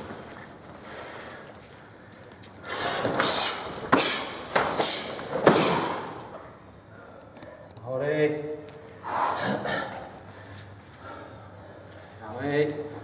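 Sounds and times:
karate strikes slapping: 3.1s - 6.2s.

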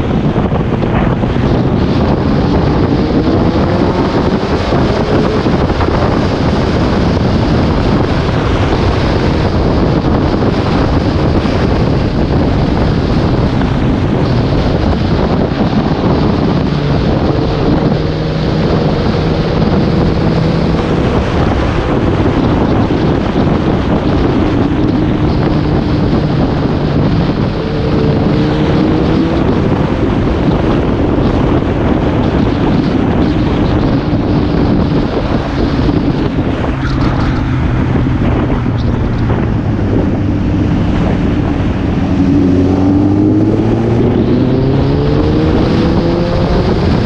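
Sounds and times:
motorcycle engine running: 0.0s - 47.0s
wind rushing over microphone: 0.0s - 47.0s.

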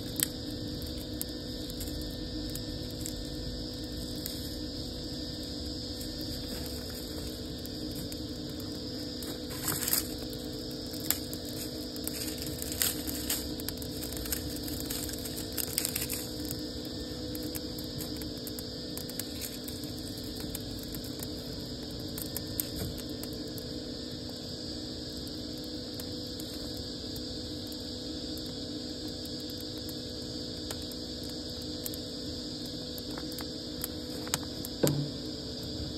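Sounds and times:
fire crackling and popping: 0.0s - 35.9s
steady hum: 0.0s - 35.9s
dry leaves crumpling: 11.6s - 16.4s.

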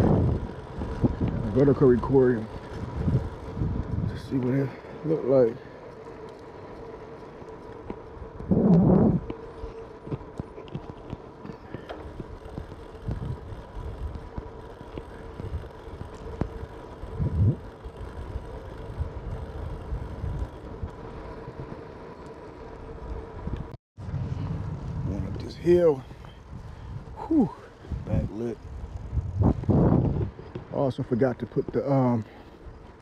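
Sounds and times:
wind on microphone: 0.0s - 4.4s, 8.3s - 9.4s, 12.9s - 14.4s, 16.4s - 17.7s, 23.4s - 30.7s
bike tyres rumbling on asphalt: 0.0s - 33.0s.

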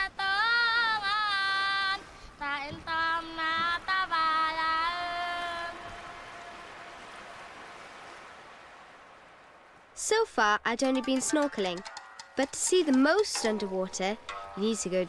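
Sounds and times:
girl singing unaccompanied: 0.0s - 6.7s, 12.4s - 15.0s
faint steady hiss: 0.0s - 10.7s.

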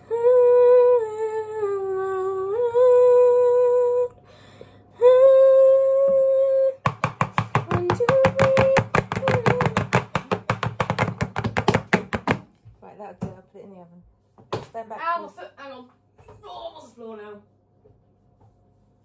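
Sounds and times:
person humming: 0.0s - 4.2s, 5.0s - 6.8s
cake tins knocking on counter: 6.8s - 12.5s.

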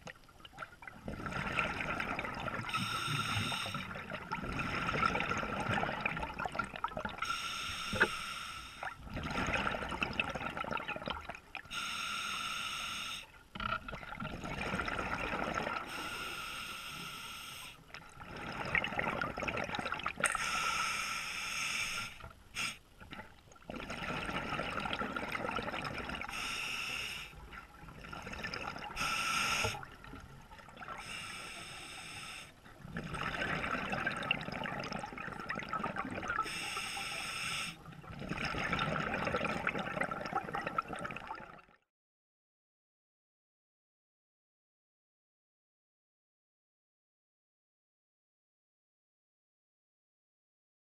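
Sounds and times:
bubbling gurgling exhalation: 1.0s - 3.3s, 9.0s - 11.3s, 18.2s - 20.3s, 23.7s - 26.3s, 33.0s - 36.5s, 38.1s - 41.7s
hissing inhalation through regulator: 2.7s - 3.9s, 7.2s - 8.9s, 11.7s - 13.3s, 15.9s - 17.8s, 20.3s - 22.8s, 26.3s - 27.4s, 29.0s - 29.8s, 31.0s - 32.6s, 36.4s - 37.8s.

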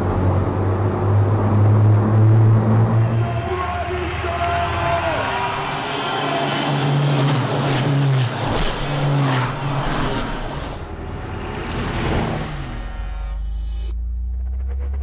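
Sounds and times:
diesel trucks passing at speed: 0.0s - 13.2s.

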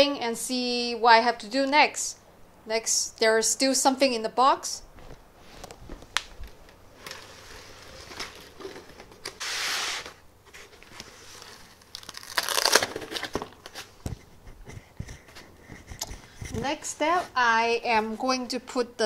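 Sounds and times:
packing foam and plastic crinkling: 5.6s - 14.0s.

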